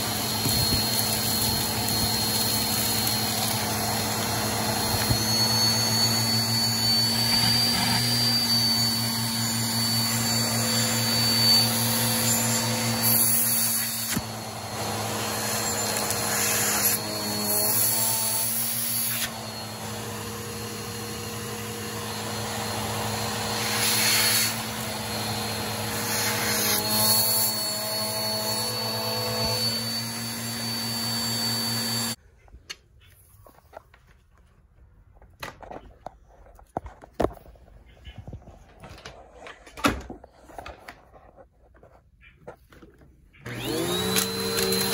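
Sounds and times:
vacuum cleaner running: 0.0s - 32.2s, 43.4s - 44.9s.

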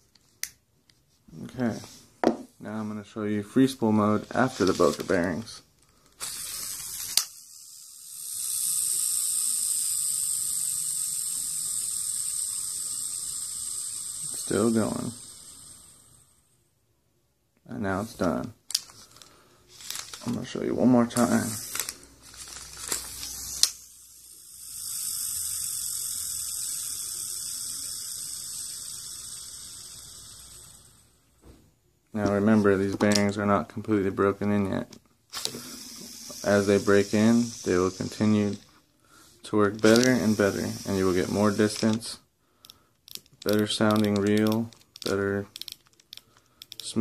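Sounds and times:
fishing reel spool whirring: 6.2s - 16.4s, 21.2s - 31.2s, 35.4s - 38.6s, 39.8s - 42.0s.

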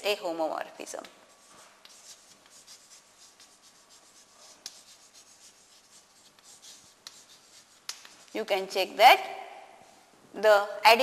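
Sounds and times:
chalk tapping: 1.0s - 8.6s
chalk scratching on blackboard: 1.2s - 8.4s.

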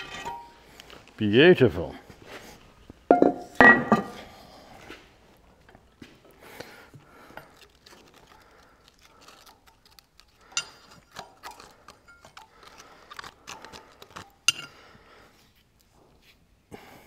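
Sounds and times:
metal clinks and scrapes: 0.0s - 0.6s, 10.4s - 12.7s, 14.1s - 14.8s.

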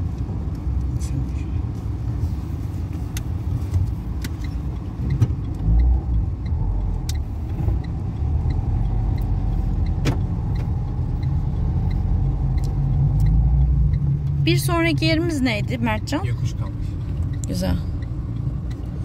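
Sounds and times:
car engine and tyres rumbling: 0.0s - 19.0s
faint regular ticking: 2.4s - 19.0s.

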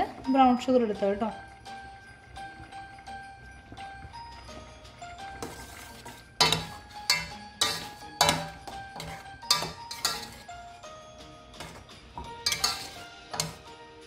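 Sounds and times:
soft background music: 0.0s - 14.0s
spoon clinking on metal pan: 5.3s - 10.5s, 11.6s - 13.7s.

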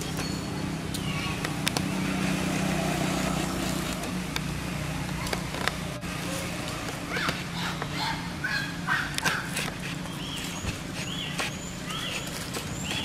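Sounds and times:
vehicle engine humming: 0.0s - 13.0s.

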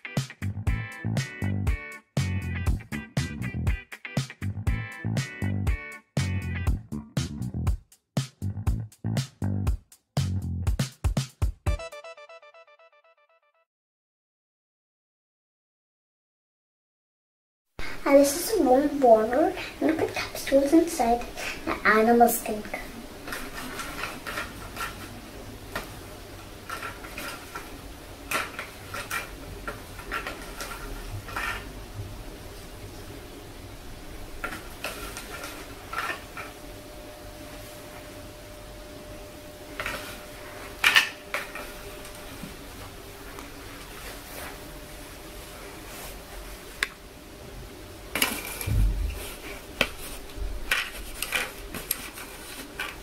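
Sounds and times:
dull bump: 48.7s - 49.2s.

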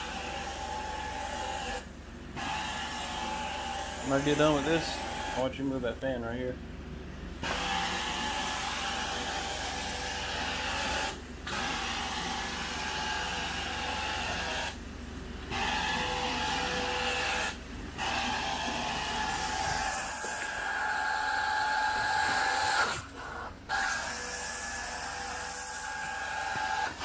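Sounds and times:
carpet extraction wand suction: 15.5s - 27.0s.

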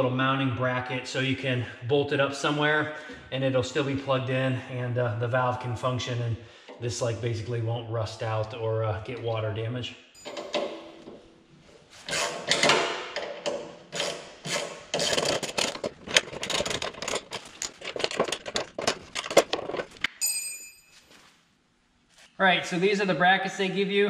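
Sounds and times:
metallic ring: 10.2s - 11.0s, 20.1s - 21.4s.

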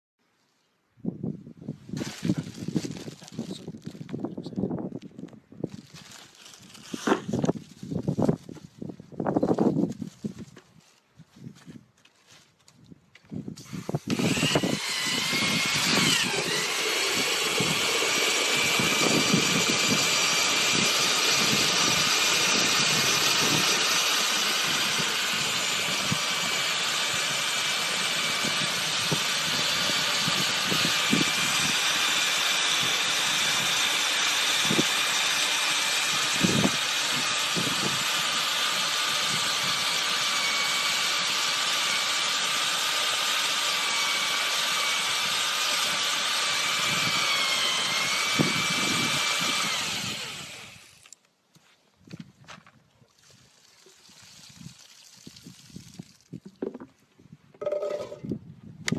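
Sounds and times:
electric drill whining: 13.6s - 51.2s
potatoes knocking against bucket: 56.4s - 57.0s.

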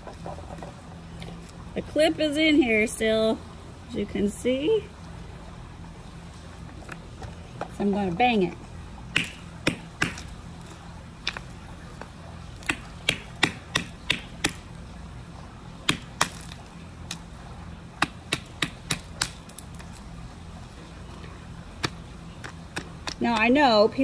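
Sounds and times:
hammer knocking on ice: 9.2s - 10.2s.

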